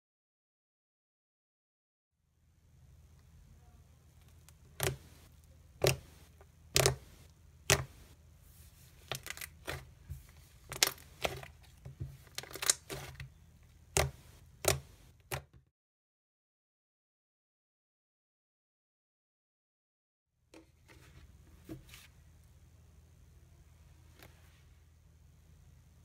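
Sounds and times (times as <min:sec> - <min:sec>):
slime popping and crackling: 0:12.3 - 0:13.2.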